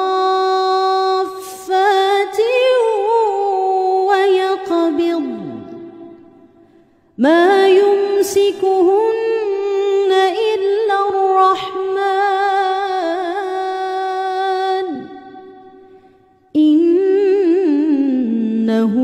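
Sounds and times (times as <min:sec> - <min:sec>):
person reciting melodically: 0:00.0 - 0:05.7.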